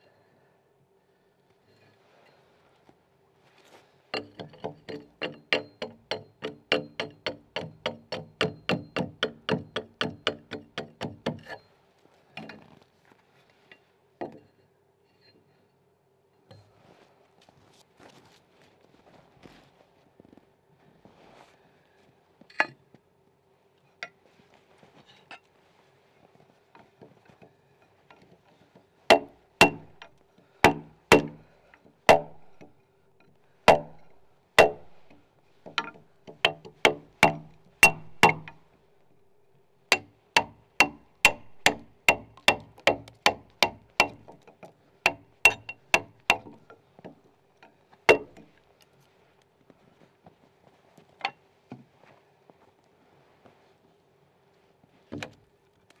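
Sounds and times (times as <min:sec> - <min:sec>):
axe striking chisel into log: 0:04.2 - 0:11.6, 0:29.1 - 0:31.5, 0:32.1 - 0:32.8, 0:33.7 - 0:38.7, 0:39.9 - 0:44.5, 0:45.1 - 0:46.7, 0:48.1 - 0:48.5.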